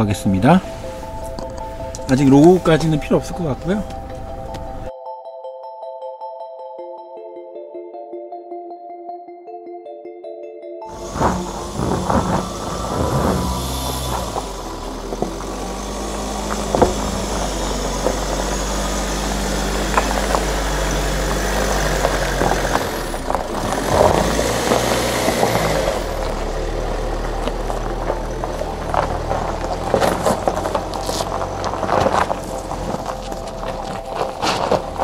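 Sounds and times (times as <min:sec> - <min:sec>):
diesel engine at low revs: 0:10.9 - 0:35.0.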